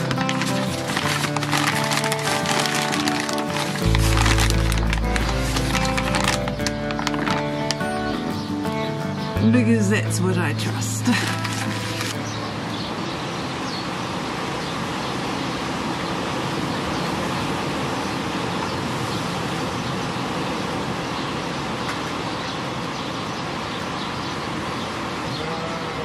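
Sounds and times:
wind and rain on shed: 0.0s - 7.8s, 13.0s - 26.0s.

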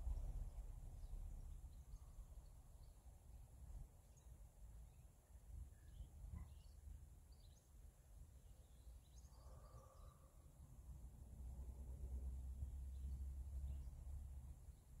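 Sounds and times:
low rumble: 0.0s - 2.6s
faint bird chirps: 4.1s - 7.7s, 8.5s - 10.5s.

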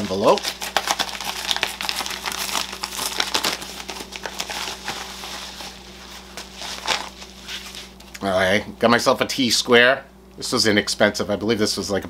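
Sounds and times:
paper envelope crinkling: 0.0s - 8.1s.

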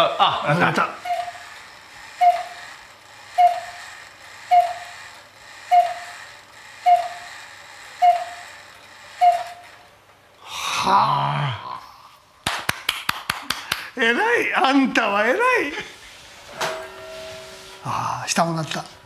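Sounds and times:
clock bell striking: 16.6s - 18.8s.

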